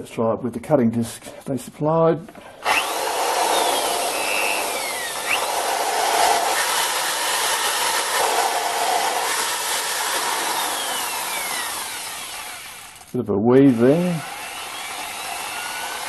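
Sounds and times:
electric drill running: 0:02.6 - 0:13.1, 0:13.7 - 0:16.0.

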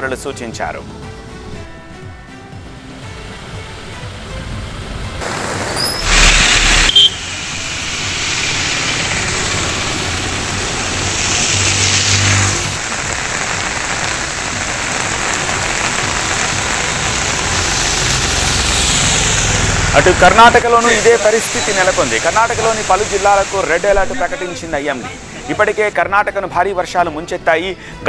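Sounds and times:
vehicles driving past: 0:00.0 - 0:27.9
vehicle engine hum: 0:02.6 - 0:23.2
heavy rain on wet road: 0:03.5 - 0:26.0
loud burst of noise: 0:05.2 - 0:26.0.

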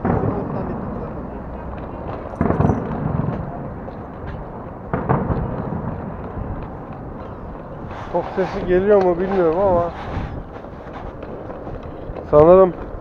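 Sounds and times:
heavy booms with low rumble: 0:00.0 - 0:03.9, 0:04.7 - 0:08.8
street noise: 0:00.0 - 0:13.0.

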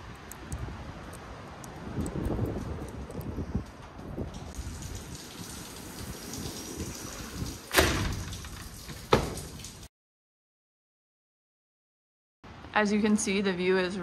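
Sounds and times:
sliding door rolling rattle: 0:05.8 - 0:09.6
door thumping against frame: 0:07.7 - 0:09.5.

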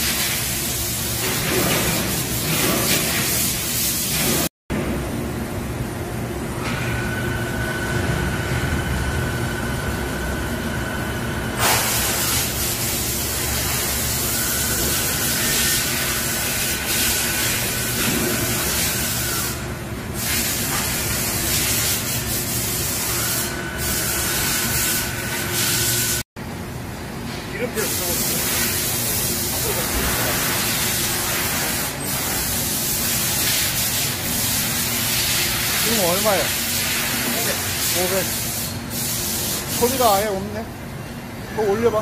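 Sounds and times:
boring mill high whine: 0:04.8 - 0:20.2
loud hiss: 0:11.6 - 0:19.6.

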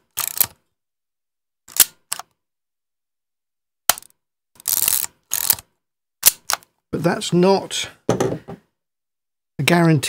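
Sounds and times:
film advance lever rasp: 0:03.9 - 0:05.6.

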